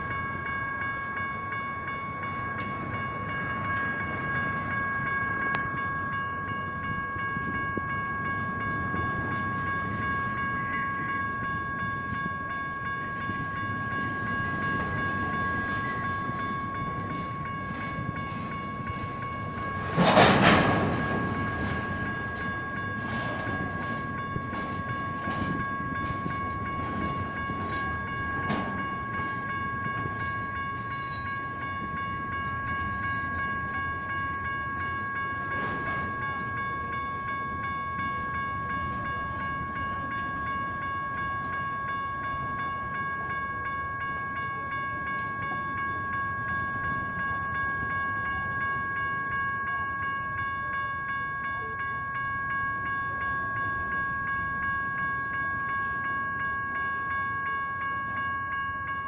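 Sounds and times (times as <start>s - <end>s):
crossing bells ringing: 0.0s - 59.0s
railcar knocks and clanks: 0.0s - 59.0s
train rumbling past: 0.0s - 59.0s.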